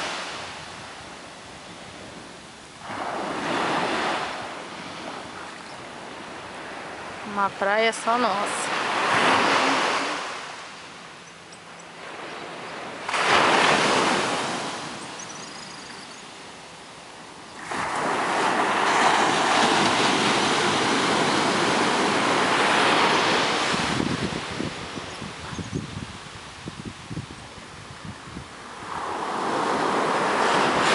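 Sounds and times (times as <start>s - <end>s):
surf washing up beach: 0.0s - 11.2s, 12.0s - 30.9s.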